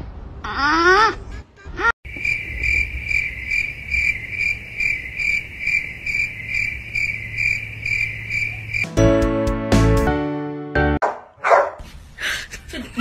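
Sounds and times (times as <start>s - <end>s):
cricket chirping: 2.1s - 8.9s.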